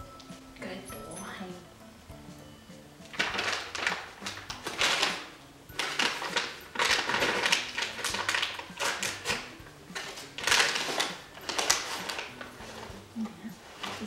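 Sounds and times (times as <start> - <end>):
plastic pouch crinkling: 3.1 - 14.0.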